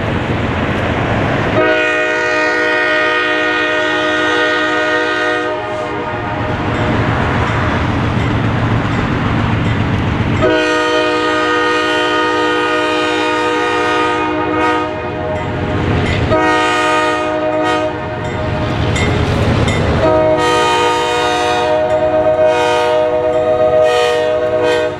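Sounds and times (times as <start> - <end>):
train rolling: 0.0 - 24.9
locomotive air horn blasts: 1.6 - 6.8, 10.4 - 15.5, 16.3 - 18.4, 20.0 - 24.9.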